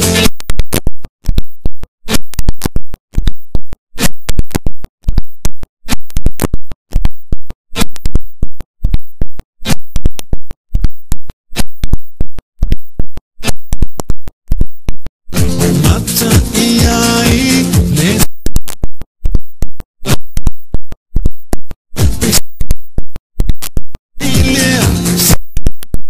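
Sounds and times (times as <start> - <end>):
distorted stuttering music: 0.0 - 0.8, 22.0 - 22.6, 24.2 - 25.5.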